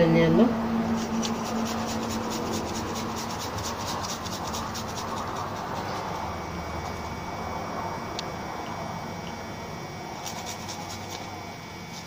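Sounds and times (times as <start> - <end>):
garlic rasping on a grater: 0.9 - 6.2, 10.2 - 11.3.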